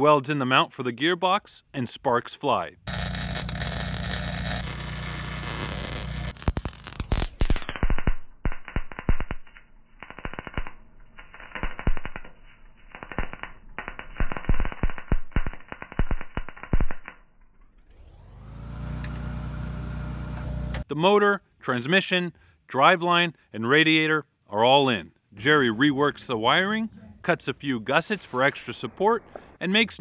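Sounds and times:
welder crackling: 2.8s - 17.6s, 18.3s - 20.9s
welding arc sizzling: 2.9s - 17.2s.

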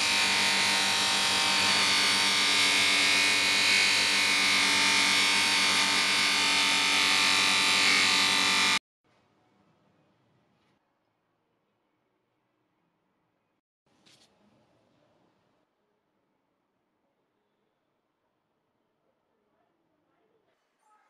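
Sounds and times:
grinder whining and grinding metal: 0.0s - 8.8s.

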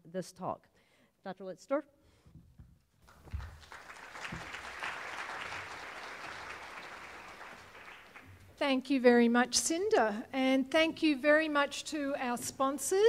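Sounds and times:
audience applauding: 3.0s - 8.4s.

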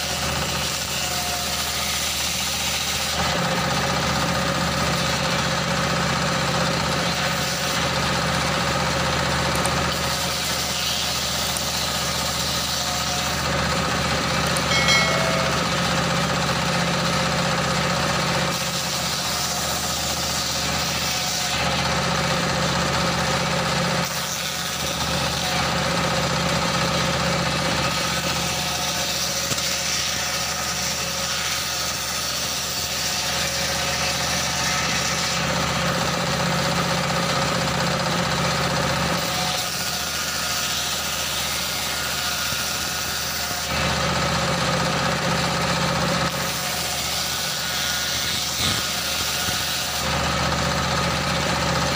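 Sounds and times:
circular saw cutting wood: 0.0s - 51.9s
diesel engine running: 3.2s - 10.2s, 11.0s - 21.0s, 35.5s - 39.2s, 43.7s - 47.0s, 48.4s - 51.9s.

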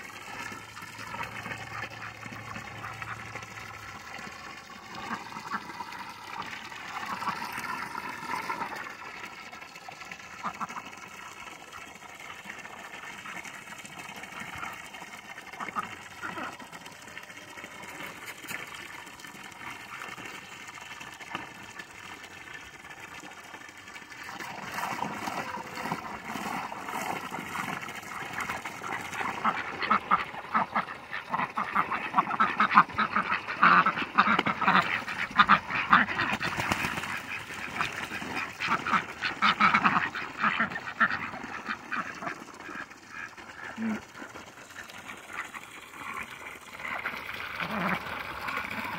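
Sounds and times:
ducks quacking: 4.8s - 8.9s, 15.5s - 16.7s, 28.2s - 47.0s, 47.6s - 48.1s.

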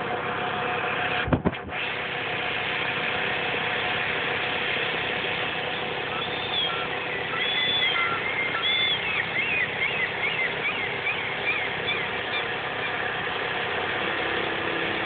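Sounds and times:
steady mechanical hum: 0.0s - 15.0s
gull calling: 5.7s - 13.2s.

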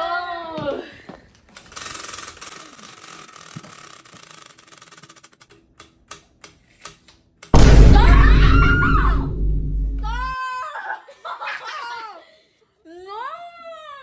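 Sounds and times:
prize wheel flapper clicking: 1.6s - 6.2s.

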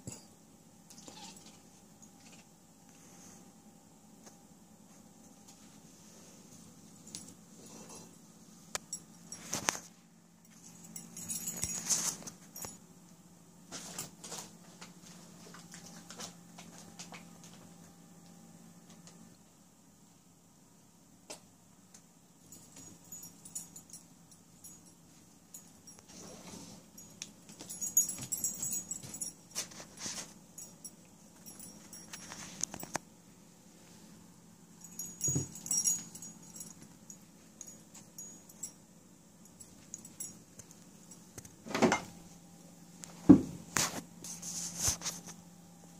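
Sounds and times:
steady low hum: 0.0s - 45.9s
light metallic jingling: 10.4s - 12.8s, 22.5s - 33.0s, 34.7s - 41.4s.

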